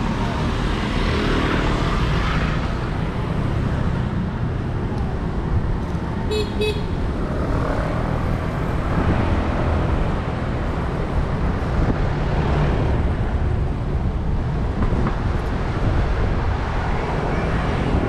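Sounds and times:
road traffic rumble: 0.0s - 18.0s.

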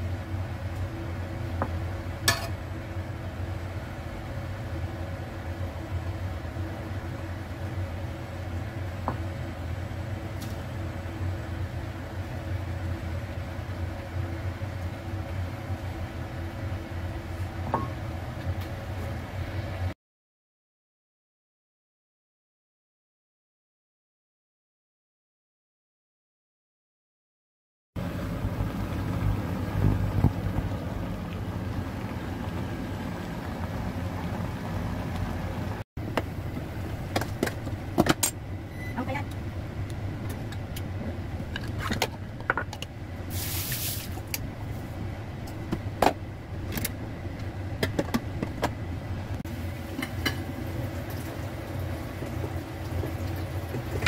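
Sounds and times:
low mechanical hum: 0.0s - 20.0s, 28.0s - 54.0s
food sizzling in a pan: 43.3s - 44.2s.

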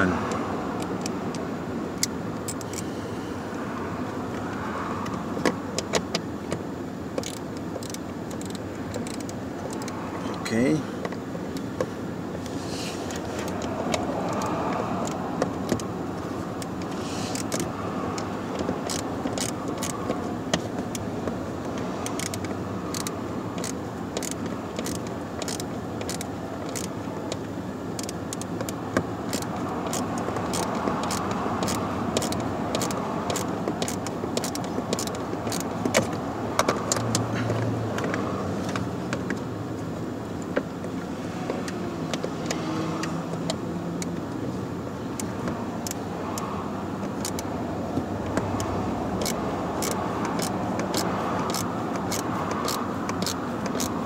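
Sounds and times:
ratchet clicking: 0.0s - 2.9s, 7.2s - 10.5s, 13.1s - 39.4s, 45.1s - 54.0s
steady background noise: 0.0s - 54.0s.

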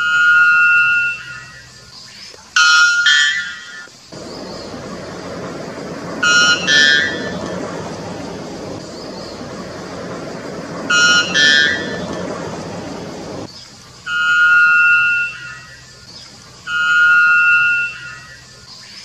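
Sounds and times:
steady background hiss: 0.0s - 19.0s
bellbird calling: 2.6s - 13.5s.

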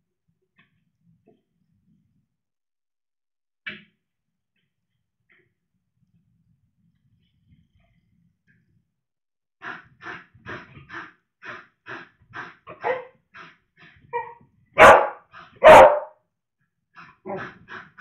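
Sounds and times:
dog barking loudly: 12.7s - 13.1s, 14.8s - 16.2s
puppy yipping: 14.2s - 16.1s.

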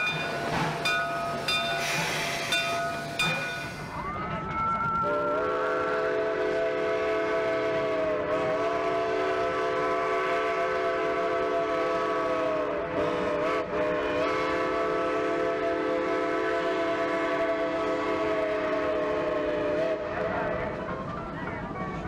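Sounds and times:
steam locomotive chime whistle: 0.0s - 4.0s, 5.0s - 20.1s.

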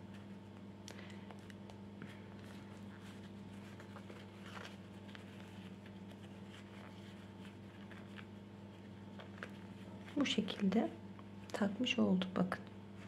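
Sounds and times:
steady low hum: 0.0s - 13.0s
fingers rustling and scratching yarn: 2.4s - 10.8s.

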